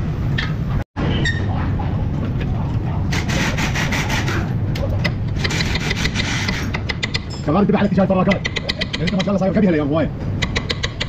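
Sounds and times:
metal scraping and rubbing: 0:00.7 - 0:07.6.

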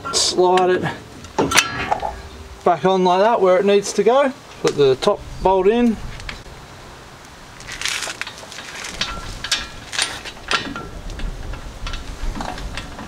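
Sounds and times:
metallic clicks and scrapes: 0:07.6 - 0:13.0.

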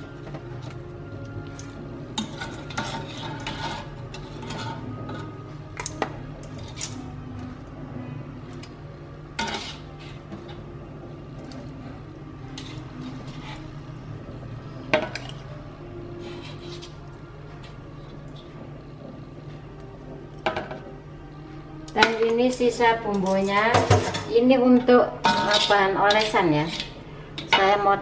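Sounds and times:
metal tongs clinking on wok: 0:25.2 - 0:27.7.

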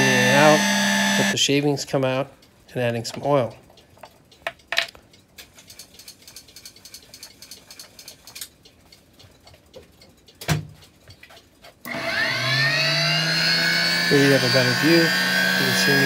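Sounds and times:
lathe motor whining: 0:00.0 - 0:01.4, 0:11.9 - 0:16.0
light clicks and ticks: 0:01.9 - 0:11.9.

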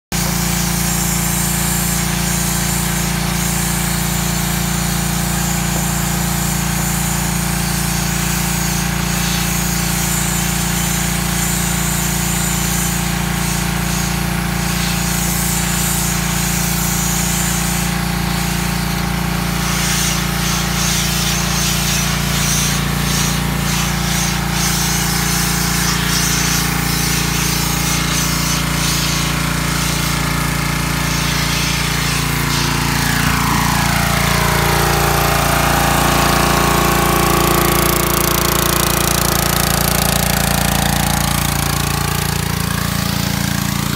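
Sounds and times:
pressure washer drone: 0:00.1 - 0:43.9
water jet hissing on hull: 0:19.5 - 0:43.9.

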